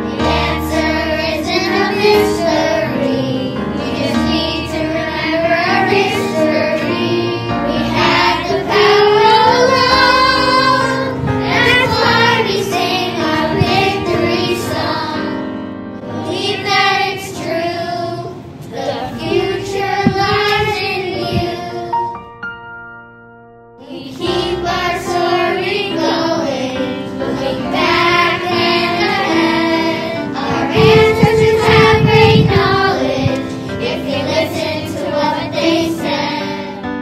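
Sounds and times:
children singing in unison: 0:00.0 - 0:15.4, 0:16.0 - 0:22.1, 0:23.8 - 0:37.0
instrumental backing track: 0:00.0 - 0:37.0.

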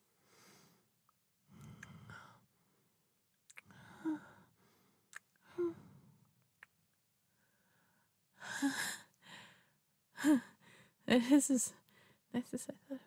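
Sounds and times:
mouth clicks: 0:03.5 - 0:03.8
woman sighing breathily: 0:03.6 - 0:04.5, 0:05.4 - 0:06.0.

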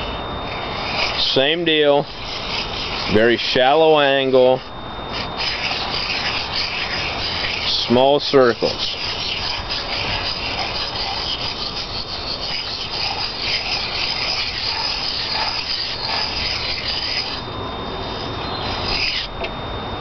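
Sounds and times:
knife scraping on sharpening stone: 0:00.6 - 0:04.2, 0:05.1 - 0:17.4.

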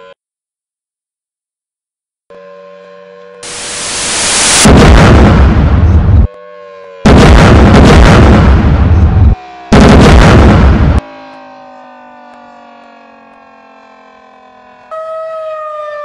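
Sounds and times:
loud deep blasts: 0:04.3 - 0:06.3, 0:07.0 - 0:11.0.

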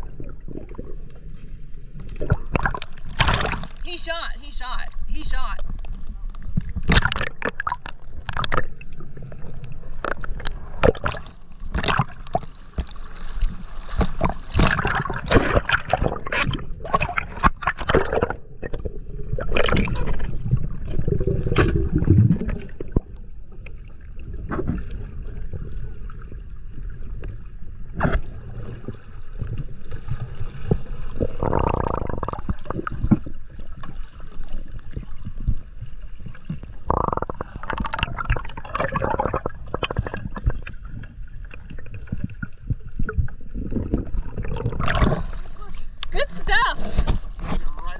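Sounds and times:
underwater rumble of moving water: 0:00.0 - 0:03.9, 0:04.8 - 0:46.1
underwater clicks and knocks: 0:02.0 - 0:03.8, 0:05.6 - 0:20.4, 0:34.7 - 0:45.2.

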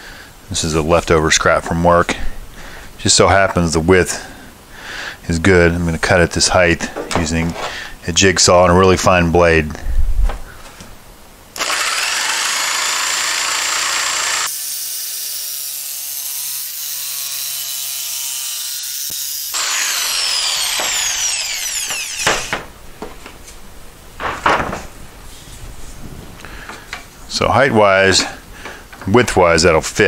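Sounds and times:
motor winding down whine: 0:11.6 - 0:14.5, 0:19.6 - 0:22.5
jigsaw cutting plastic sheet: 0:11.6 - 0:14.6, 0:19.6 - 0:22.6.

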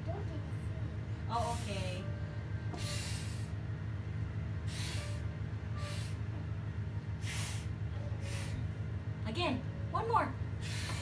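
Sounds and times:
child blowing at candles: 0:02.8 - 0:03.6, 0:04.7 - 0:06.3, 0:07.2 - 0:08.6.

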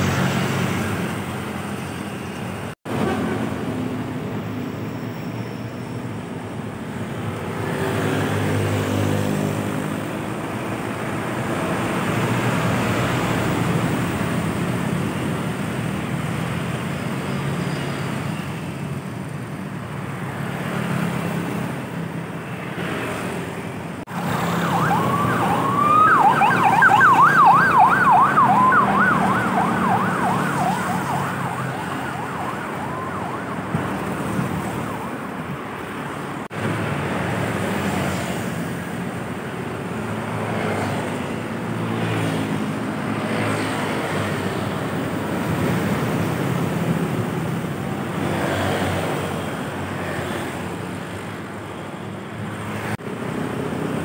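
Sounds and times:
road traffic passing: 0:00.0 - 0:54.0
electronic siren yelping: 0:24.1 - 0:35.3.

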